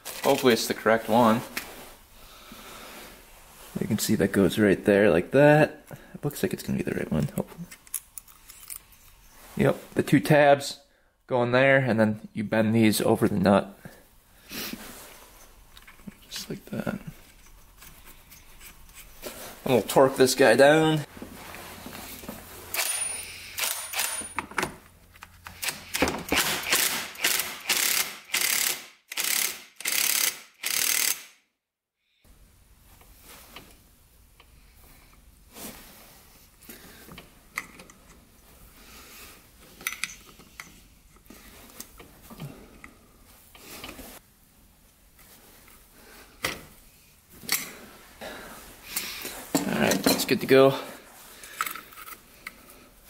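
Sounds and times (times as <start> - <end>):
wrench ratcheting: 25.4 - 31.4
metal tools clicking and tapping: 39.8 - 41.2.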